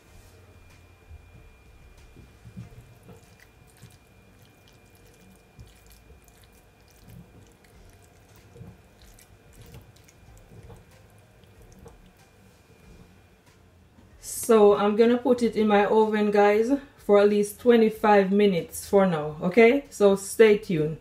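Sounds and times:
fingers squelching stuffing: 0:02.5 - 0:12.3.

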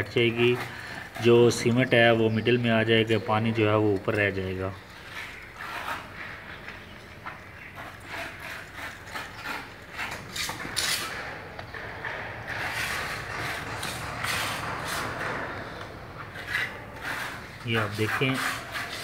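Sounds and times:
metal rod scraping grit in glass: 0:07.6 - 0:11.5, 0:16.2 - 0:19.0.

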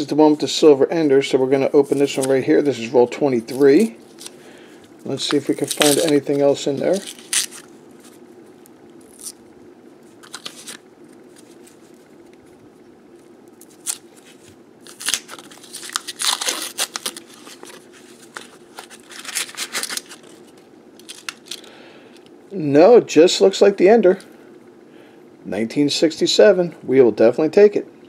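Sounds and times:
paper wrapper tearing and crinkling: 0:05.2 - 0:08.2, 0:09.0 - 0:09.4, 0:10.2 - 0:11.8, 0:13.6 - 0:21.7.

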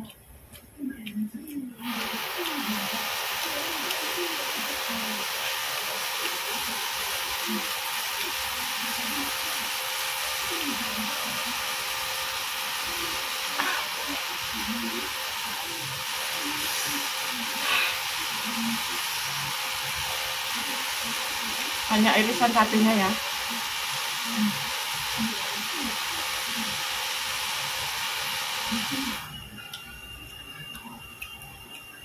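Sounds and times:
faint low murmuring voice: 0:00.0 - 0:01.8
electric fan hissing: 0:01.7 - 0:32.0.

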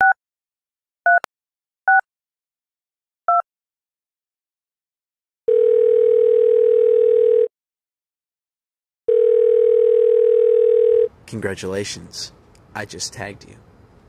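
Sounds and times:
telephone ringback tone: 0:05.5 - 0:07.5, 0:09.1 - 0:11.1.

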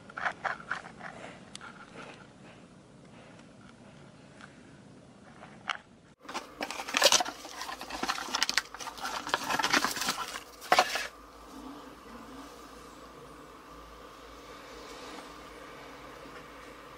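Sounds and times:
cardboard and paper rustling: 0:06.2 - 0:11.2.

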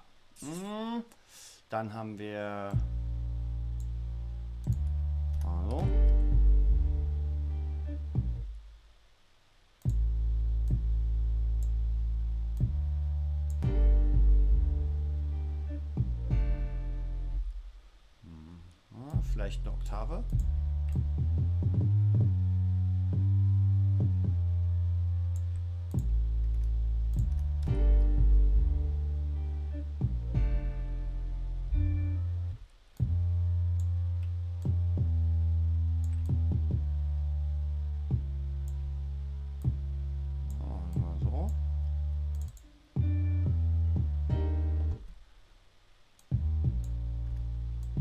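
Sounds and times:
synthesized bass notes: 0:02.6 - 0:08.8, 0:09.8 - 0:45.2, 0:46.2 - 0:48.0
faint mouse clicks: 0:36.0 - 0:36.4, 0:40.4 - 0:42.7.

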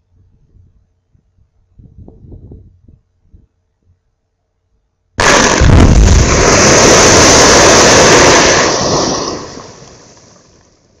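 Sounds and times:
rock blast roar: 0:05.2 - 0:09.0
falling rock: 0:05.2 - 0:09.5.

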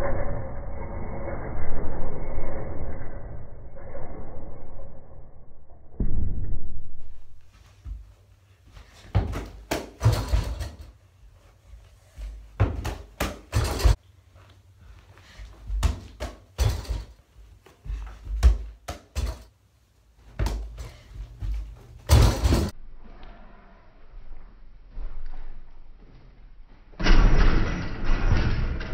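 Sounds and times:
ball bouncing: 0:09.1 - 0:10.6, 0:12.6 - 0:14.0, 0:15.6 - 0:17.1, 0:17.8 - 0:19.4, 0:20.3 - 0:21.8.

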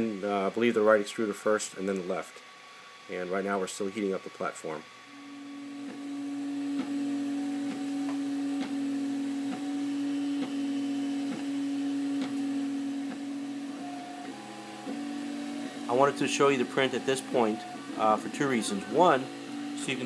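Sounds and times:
printer stepper motor whine: 0:02.5 - 0:20.0.

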